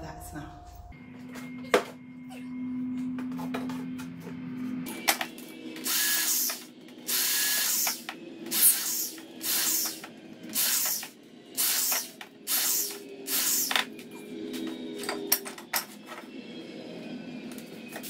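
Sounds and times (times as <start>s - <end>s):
electric drill into wood: 5.8s - 13.8s.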